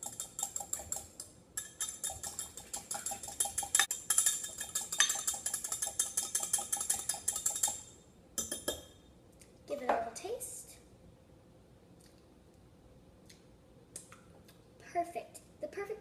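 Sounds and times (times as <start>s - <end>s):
whisk clinking against glass: 0.0s - 8.9s.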